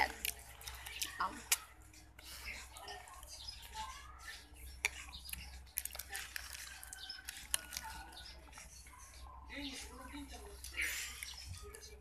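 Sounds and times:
small clicks and crinkles: 4.3 - 8.7.

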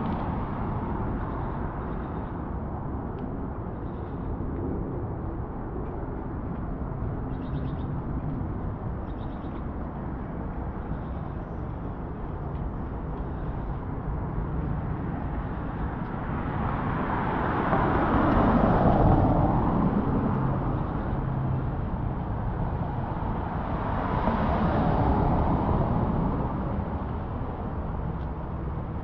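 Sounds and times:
background traffic hum: 0.0 - 29.0
vehicle passing by: 14.7 - 27.8.

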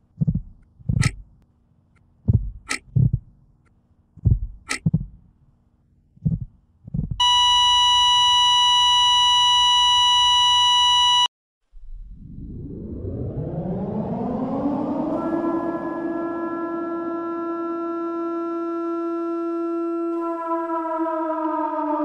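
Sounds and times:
heartbeat thumps: 0.1 - 1.4, 2.2 - 3.4, 4.2 - 5.2, 6.2 - 7.2
sharp clicks: 1.9 - 3.0, 4.6 - 5.0
flatline beep: 7.2 - 11.3.

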